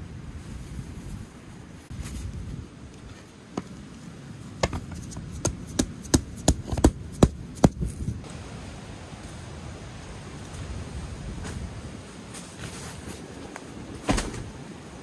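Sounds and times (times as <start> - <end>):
mallet hammering stake into sand: 4.6 - 7.8.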